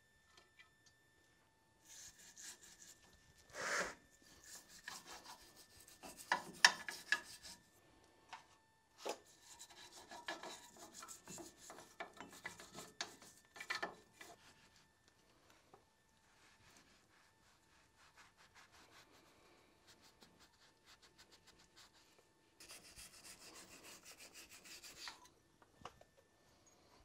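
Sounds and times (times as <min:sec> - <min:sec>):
scraping and rubbing on metal: 0:01.9 - 0:07.6, 0:09.0 - 0:14.9, 0:22.6 - 0:25.3.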